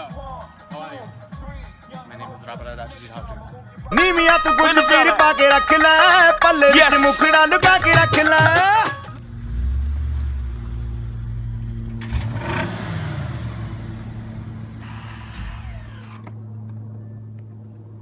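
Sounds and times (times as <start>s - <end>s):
rap music: 0.0s - 9.2s
car engine revving: 9.2s - 16.8s.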